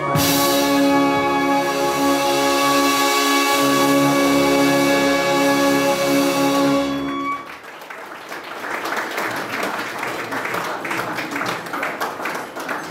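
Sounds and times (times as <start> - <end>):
brass band holding a chord: 0.0 - 7.5
audience applauding: 6.3 - 12.9.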